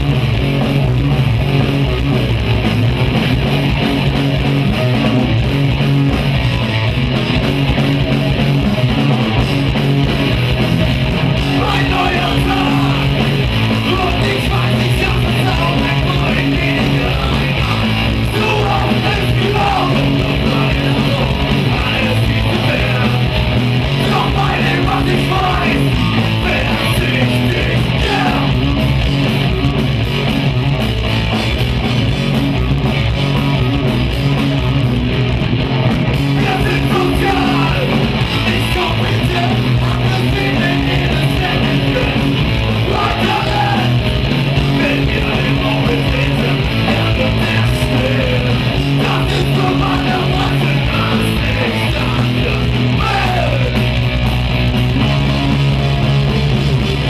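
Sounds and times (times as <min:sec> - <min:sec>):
live punk rock band: 0:00.0 - 0:57.0
sung and shouted vocals: 0:11.5 - 0:23.3, 0:23.9 - 0:28.6, 0:36.4 - 0:53.8.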